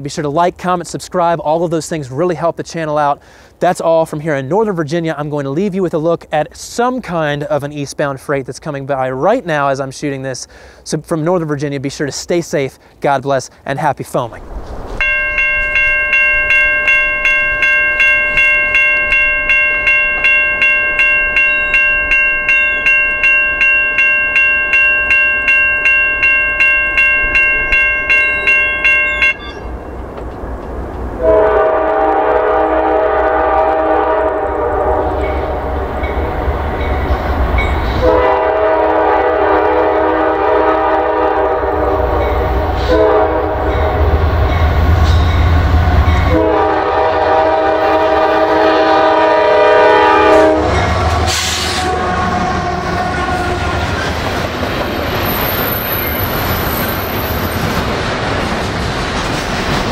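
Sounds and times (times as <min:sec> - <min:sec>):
train rumble: 0:14.2 - 0:59.9
crossing bell ringing: 0:15.0 - 0:30.0, 0:34.1 - 0:38.5, 0:40.5 - 0:51.3, 0:53.2 - 0:57.9
locomotive horn blasts: 0:31.2 - 0:35.5, 0:38.0 - 0:44.1, 0:46.2 - 0:54.0.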